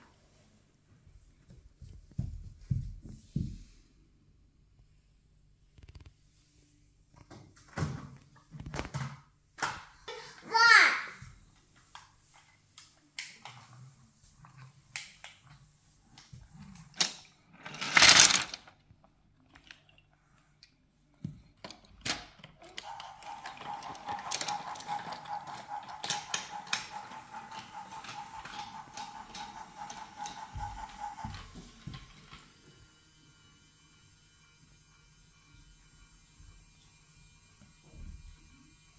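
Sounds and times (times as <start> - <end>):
toy motor whirring: 13.4 - 18.8, 22.1 - 38.9
plastic toys clicking and knocking: 14.9 - 32.6.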